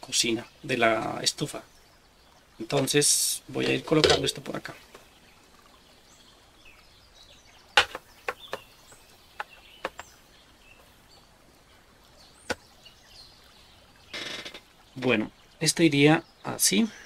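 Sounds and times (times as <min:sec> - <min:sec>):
wooden pieces clicking and knocking: 0:07.8 - 0:08.6.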